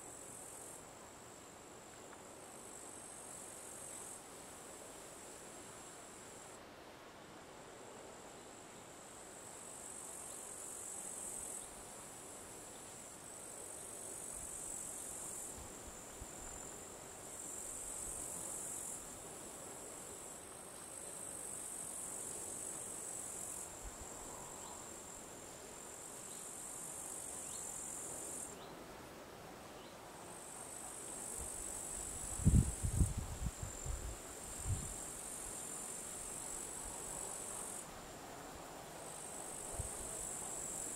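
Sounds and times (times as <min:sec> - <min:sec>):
insects trilling: 0:19.8 - 0:28.8, 0:29.7 - 0:37.9, 0:39.0 - 0:40.9.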